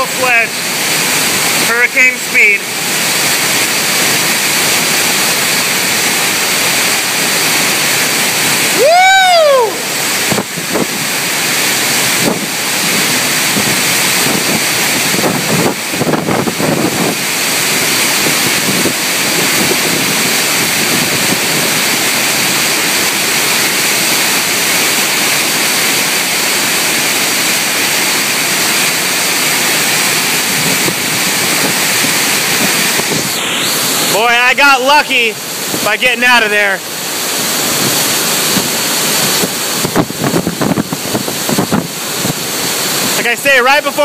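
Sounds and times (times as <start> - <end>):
strong wind and heavy rain: 0.0 - 44.0
wind buffeting microphone: 10.0 - 11.2, 12.1 - 22.5, 30.4 - 34.1, 37.4 - 43.3.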